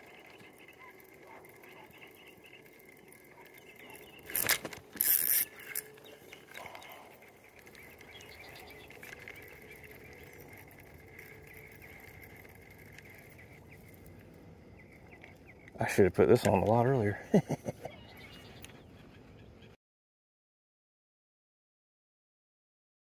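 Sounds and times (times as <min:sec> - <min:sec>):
fishing reel ratcheting whir: 0:00.0 - 0:15.8.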